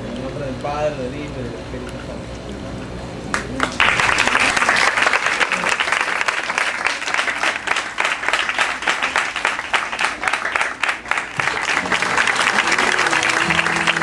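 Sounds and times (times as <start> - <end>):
congregation clapping: 3.3 - 14.0
music with held notes: 11.8 - 14.0.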